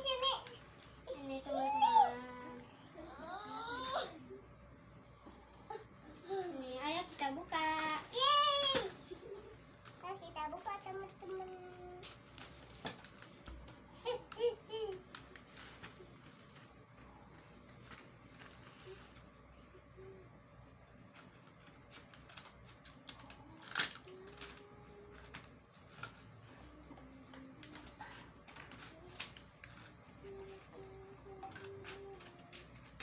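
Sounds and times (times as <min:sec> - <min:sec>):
plastic packaging rustling: 0:09.7 - 0:17.0, 0:21.1 - 0:26.4, 0:27.4 - 0:33.0.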